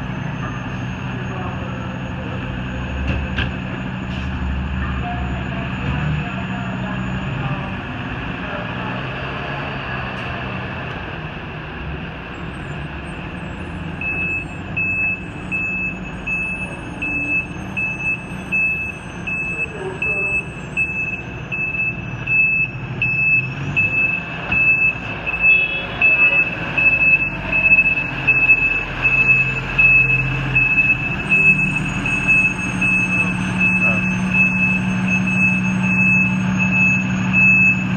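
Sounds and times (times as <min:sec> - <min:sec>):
diesel engine rumbling: 0:00.0 - 0:37.9
reverse alarm beeping: 0:14.0 - 0:37.9.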